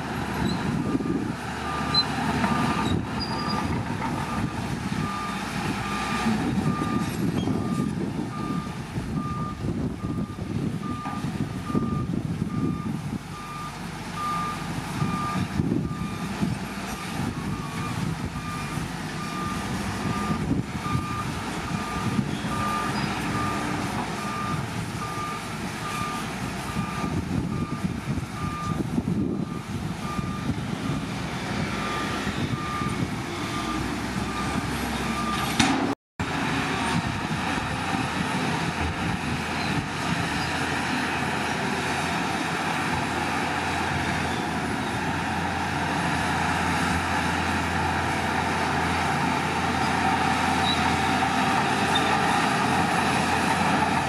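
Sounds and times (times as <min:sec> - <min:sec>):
diesel engine rumbling: 0:00.0 - 0:54.0
reversing alarm beeping: 0:00.4 - 0:16.3, 0:17.0 - 0:23.6, 0:24.2 - 0:31.0, 0:31.8 - 0:35.5.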